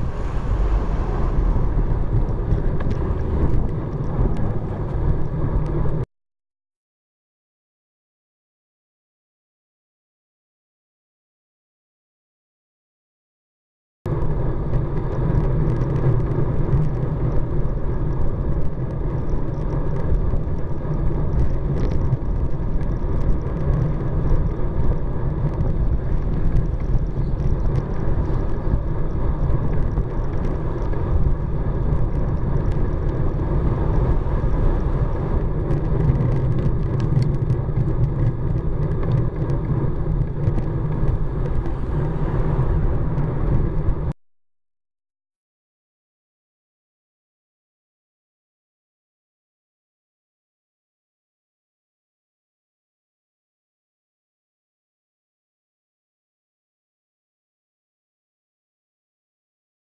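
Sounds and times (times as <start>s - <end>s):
traffic passing: 0.0s - 6.0s, 25.8s - 44.1s
wind buffeting microphone: 0.0s - 6.0s, 14.1s - 44.1s.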